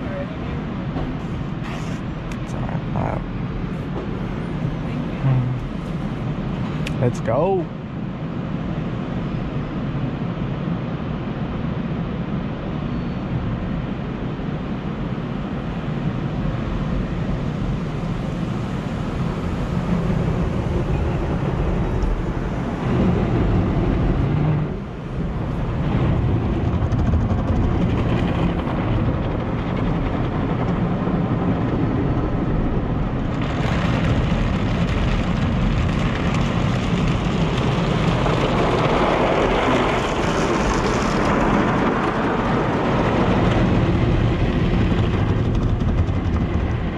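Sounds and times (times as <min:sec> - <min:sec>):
car wash water jets spraying: 0:32.7 - 0:46.9.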